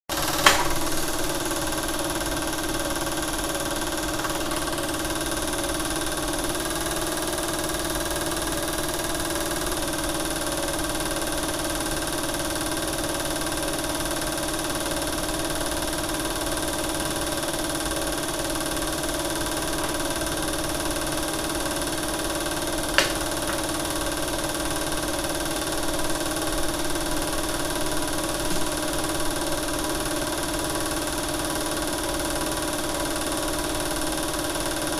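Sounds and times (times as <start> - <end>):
film projector humming: 0.1 - 34.9
sharp click: 0.2 - 1.1, 22.9 - 23.7.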